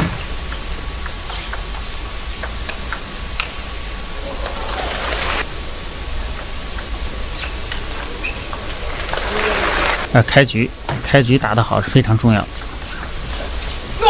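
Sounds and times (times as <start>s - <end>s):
crowd noise: 3.6s - 6.3s, 6.9s - 10.2s.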